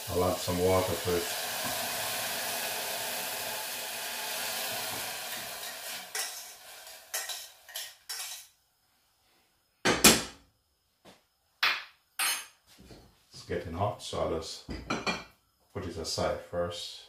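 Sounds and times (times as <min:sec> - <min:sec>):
water hissing in hot saucepan: 0:00.0 - 0:08.5.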